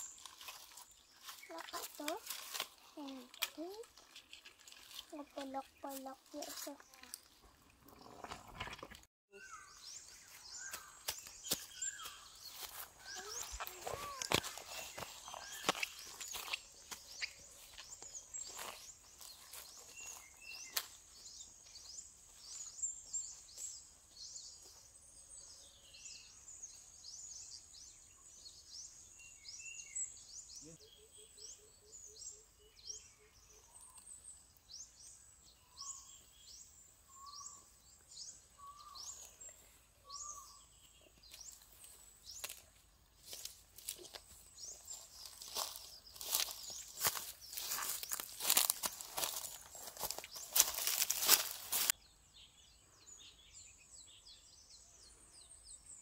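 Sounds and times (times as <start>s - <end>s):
footsteps in grass: 0.0s - 7.4s, 10.2s - 23.8s, 41.2s - 52.0s
high thin bird chirps: 9.3s - 21.0s.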